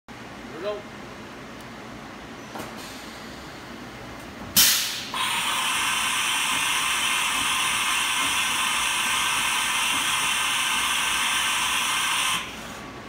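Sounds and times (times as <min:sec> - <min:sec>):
machining centre hiss and whine: 0:00.1 - 0:13.0
sharp air blast: 0:04.6 - 0:12.9.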